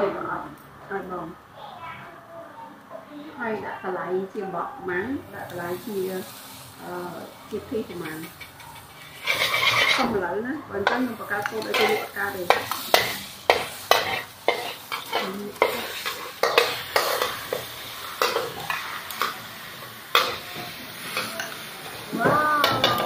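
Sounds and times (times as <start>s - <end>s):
food sizzling in oil: 5.3s - 23.0s
metal spatula scraping wok: 7.7s - 10.2s, 10.8s - 23.0s.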